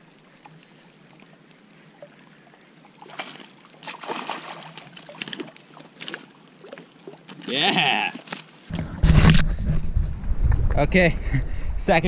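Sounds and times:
fish splashing in water: 2.9 - 7.5.

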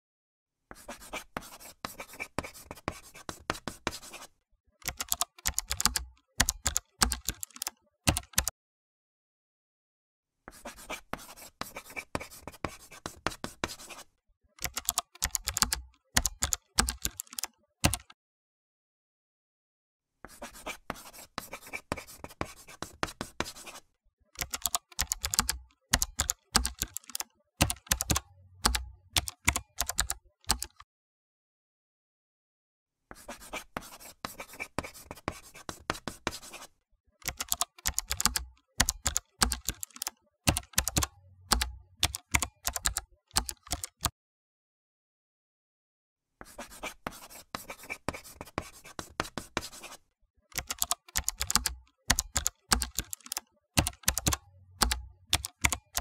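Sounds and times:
computer keyboard typing: 4.8 - 8.5, 14.6 - 18.2, 24.4 - 30.8, 37.2 - 44.1, 48.1 - 56.0.

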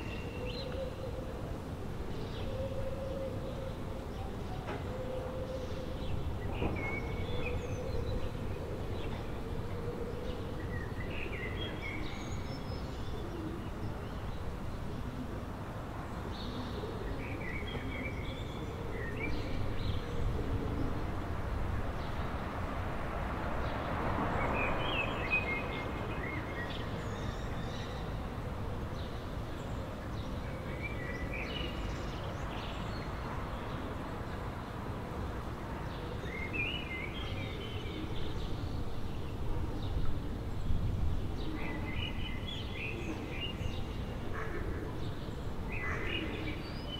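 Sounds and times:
songbird song: 0.0 - 46.9
city background rumble: 3.8 - 46.9.

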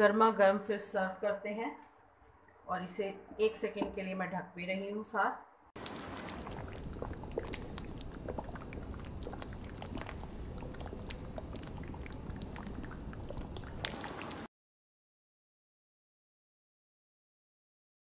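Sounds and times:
gravy simmering and bubbling: 5.7 - 14.5.

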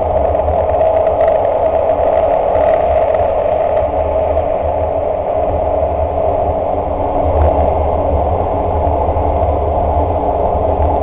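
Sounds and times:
train rumbling through tunnel: 0.0 - 11.0.

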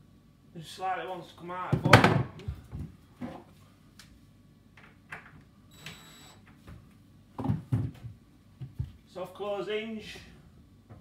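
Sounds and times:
cabinet door knocking and thumping: 7.4 - 8.9.

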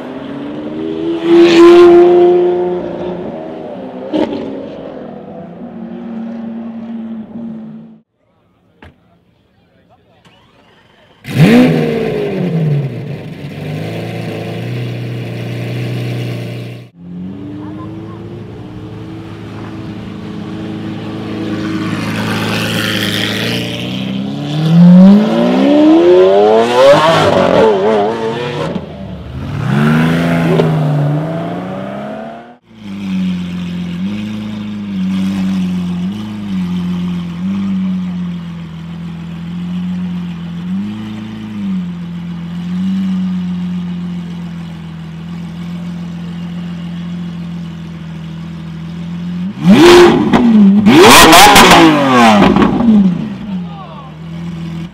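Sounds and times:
loud car engine accelerating: 0.0 - 8.0, 11.2 - 54.9
car engine idling with throttle blips: 32.7 - 54.9.

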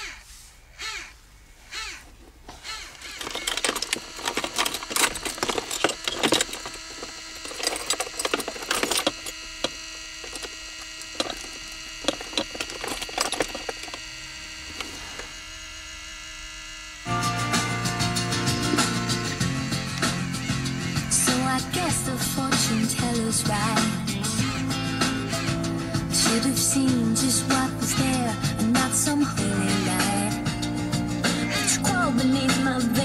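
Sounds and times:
disc mechanism clicking and rattling: 2.8 - 14.1, 17.6 - 23.2.

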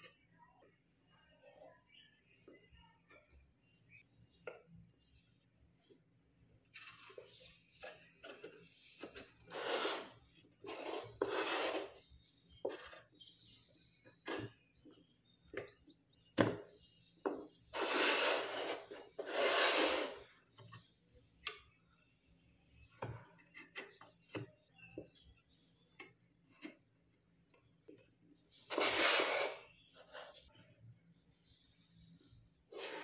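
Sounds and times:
rustling scraping sounds: 6.8 - 12.0, 17.7 - 20.5, 28.6 - 30.8, 32.7 - 33.0.

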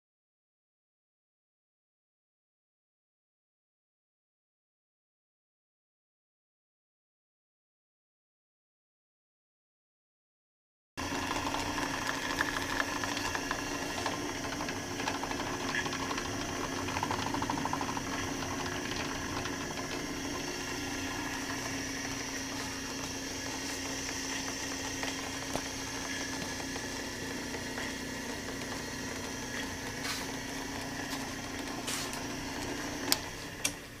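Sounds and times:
drill press motor hum: 11.0 - 34.0.

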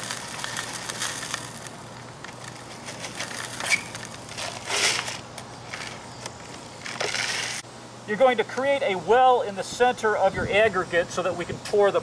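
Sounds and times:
gravel pouring into plastic bucket: 0.0 - 5.2, 6.8 - 7.6.

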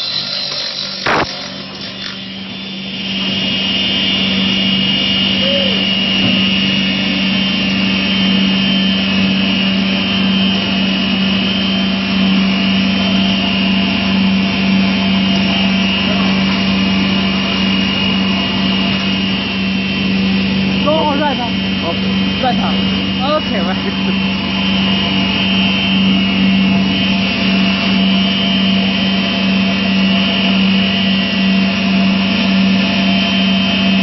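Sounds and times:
rough rasping: 0.0 - 2.4
high whine: 0.0 - 34.0
saw cutting foam panel: 0.0 - 34.0.

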